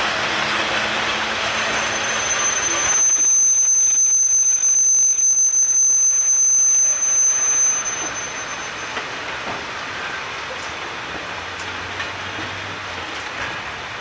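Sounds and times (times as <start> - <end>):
rumble of train wagons: 0.0 - 14.0
train wheels squealing: 0.1 - 10.6.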